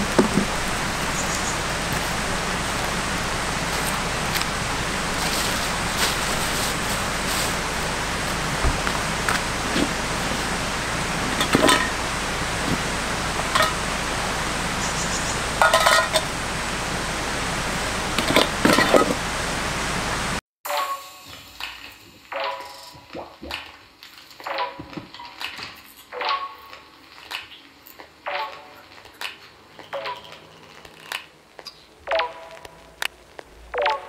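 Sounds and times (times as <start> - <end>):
stream rushing: 0.0 - 20.4.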